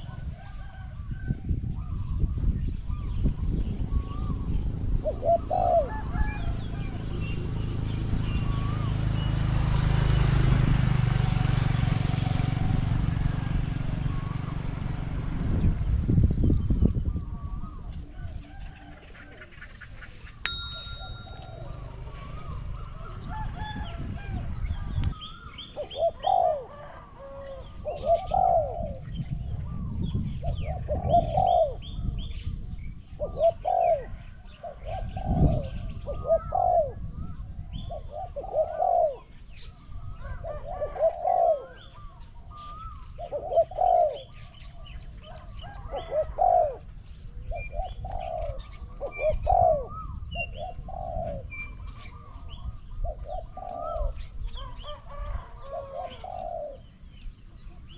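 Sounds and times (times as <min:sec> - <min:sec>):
wind rumble on microphone: 0:00.0 - 0:57.9
doves cooing: 0:04.0 - 0:09.1, 0:17.0 - 0:32.0, 0:33.2 - 0:57.9
small birds chirping: 0:06.4 - 0:12.3, 0:24.6 - 0:57.9.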